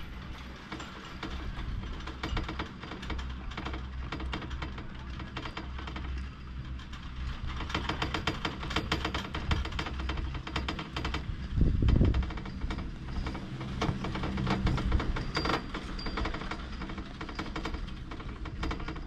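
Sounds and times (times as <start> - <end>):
chairlift rope clattering over wheels: 0.0 - 19.0
low rumble: 9.3 - 19.0.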